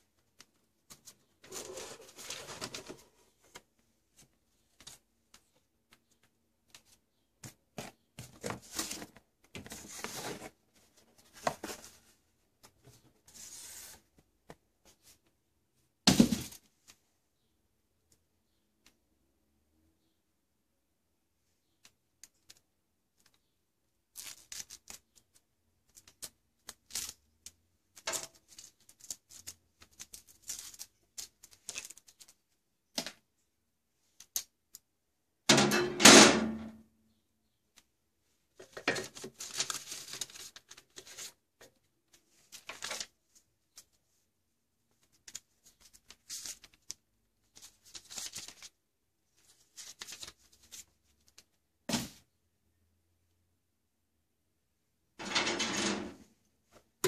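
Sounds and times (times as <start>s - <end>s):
wire rack clattering: 35.5s - 36.6s, 55.2s - 56.2s
rack scraping: 55.2s - 56.3s.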